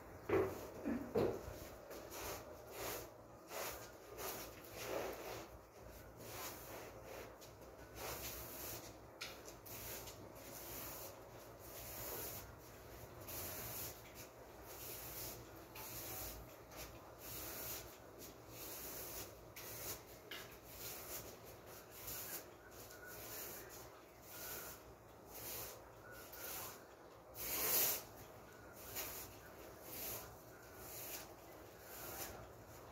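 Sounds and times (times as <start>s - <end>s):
broom sweeping tiled floor: 0.2s - 32.9s.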